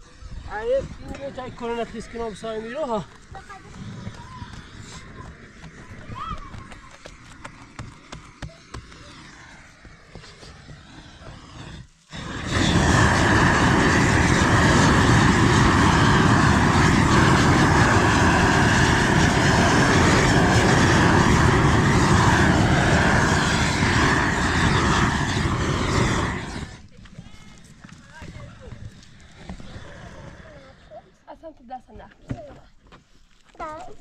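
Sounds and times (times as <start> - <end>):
gas torch flame rushing: 0.0 - 26.9.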